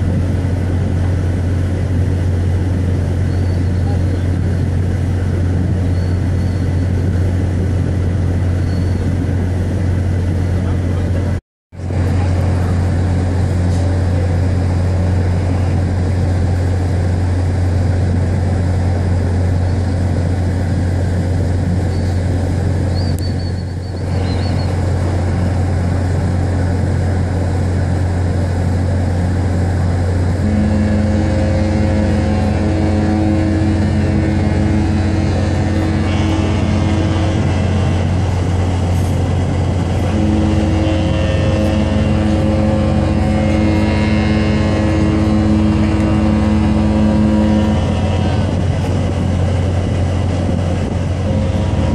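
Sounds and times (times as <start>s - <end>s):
very deep ship horn: 0.0s - 51.9s
higher-pitched ship horn: 24.0s - 51.9s.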